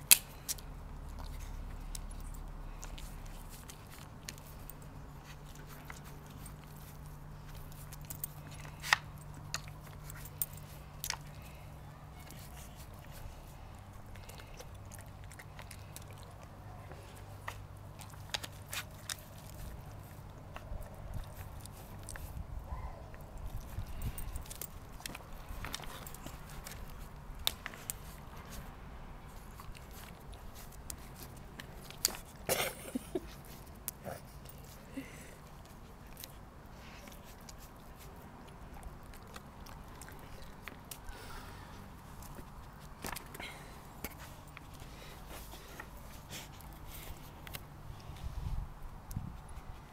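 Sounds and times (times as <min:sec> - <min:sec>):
dog licking and chewing: 0:00.0 - 0:41.2.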